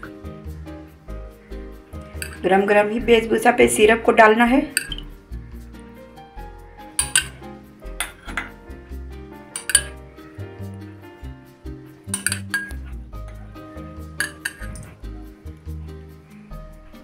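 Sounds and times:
background music: 0.0 - 17.0
metal spoon clinking on glass: 2.2 - 2.4, 4.7 - 5.1, 7.0 - 7.4, 9.5 - 10.0, 12.1 - 12.8, 14.2 - 14.9.

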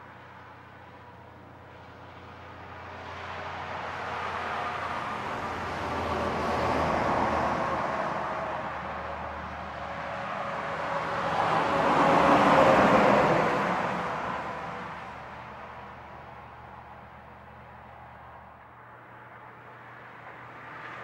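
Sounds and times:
truck passing on highway: 0.0 - 21.0
car passing: 0.2 - 21.0.

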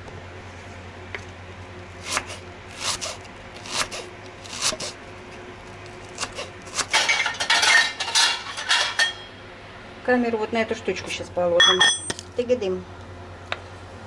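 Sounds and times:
knife slicing onion on wooden board: 2.0 - 5.0, 6.1 - 7.1.

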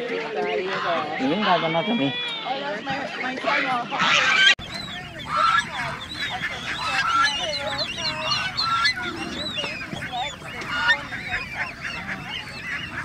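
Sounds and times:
poultry calling: 0.4 - 13.0.

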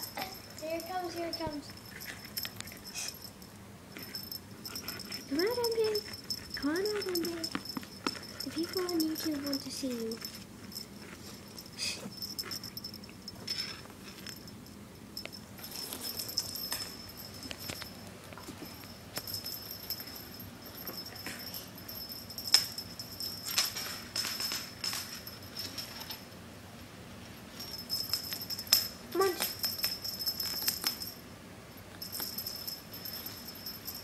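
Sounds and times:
faint rattling and jingling: 0.0 - 34.0
claws and toy skittering on floor: 4.0 - 26.4, 27.3 - 31.2.

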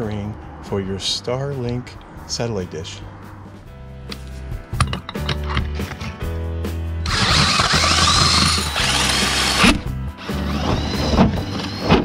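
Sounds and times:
drill cutting with hole saw: 7.0 - 12.0.

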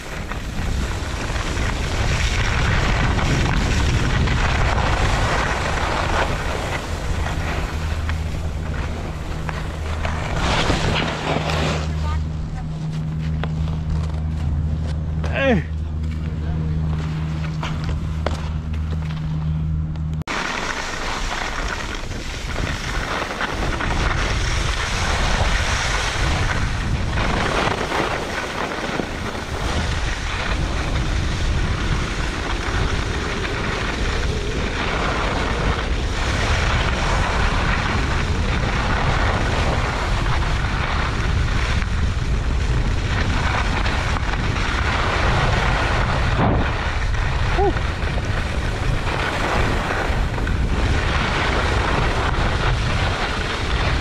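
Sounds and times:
skis scraping on snow: 0.0 - 15.4, 16.0 - 19.6, 20.3 - 54.0
wind buffeting microphone: 0.0 - 20.4, 21.4 - 54.0
steady low hum: 0.0 - 20.9.

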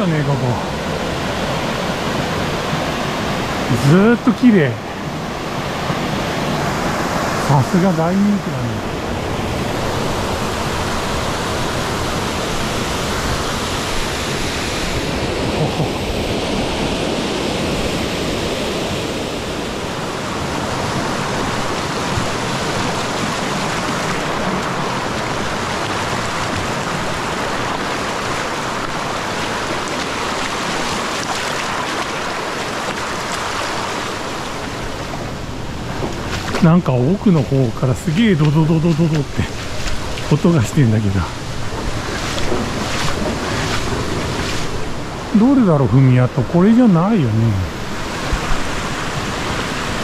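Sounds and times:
stream water rushing: 0.0 - 50.0.

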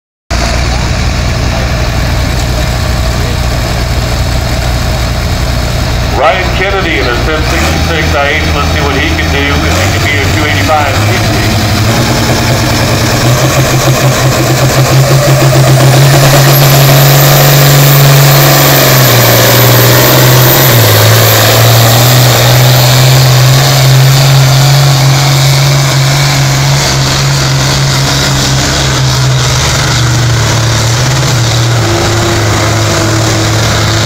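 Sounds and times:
diesel tractor engine at full throttle: 0.3 - 34.0.

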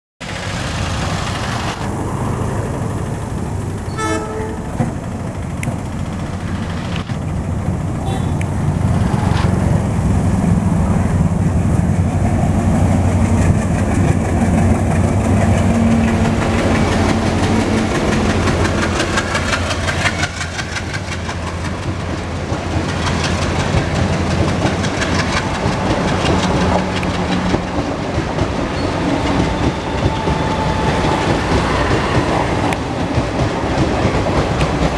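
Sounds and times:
diesel locomotive engine drone: 0.2 - 34.9
train wheels clattering on rails: 0.2 - 34.9
train horn toot: 3.9 - 4.8, 8.0 - 8.4.

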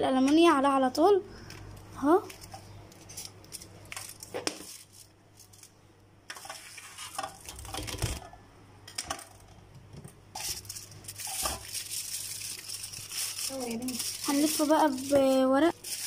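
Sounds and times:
aluminium foil rustling: 1.4 - 8.3, 10.3 - 16.0
cling film crinkling: 1.5 - 5.8, 10.3 - 16.0.

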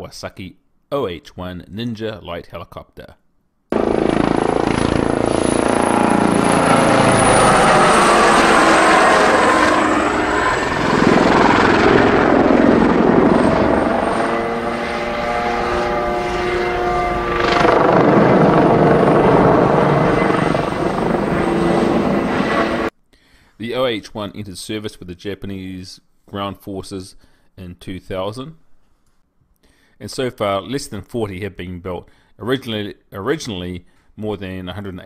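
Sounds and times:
helicopter flying overhead: 3.7 - 22.9.

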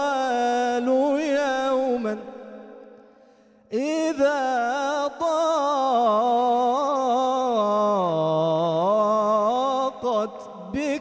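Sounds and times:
man singing devotional chant: 0.0 - 2.9, 3.7 - 11.0.

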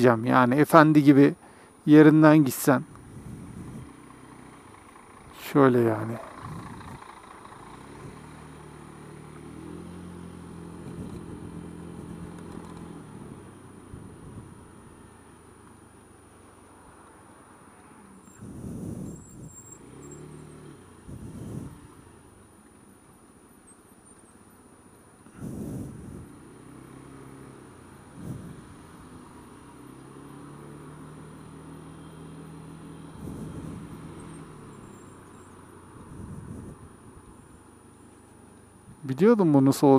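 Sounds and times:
scooter engine running: 3.0 - 15.9, 31.5 - 38.8.

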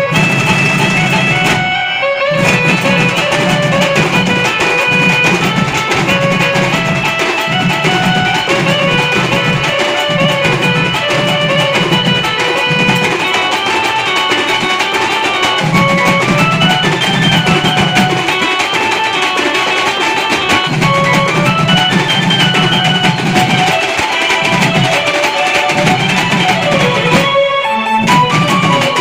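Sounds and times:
drum band playing: 0.0 - 29.0
melody of short pitched notes: 0.0 - 29.0.

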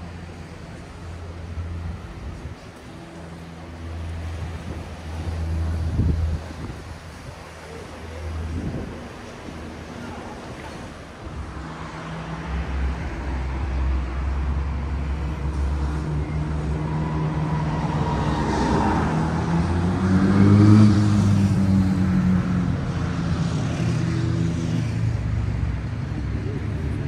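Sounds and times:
road traffic: 0.0 - 27.0
vehicle engine passing: 11.4 - 27.0.

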